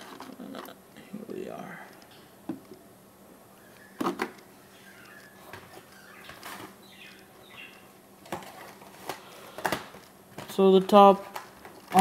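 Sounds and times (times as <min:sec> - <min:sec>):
faint plastic rustling: 0:07.5 - 0:12.0.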